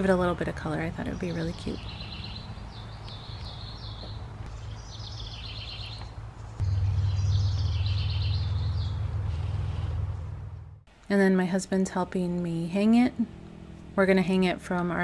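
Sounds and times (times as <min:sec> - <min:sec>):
songbirds chirping and trilling: 0:00.6 - 0:10.0
low mechanical hum: 0:06.0 - 0:15.0.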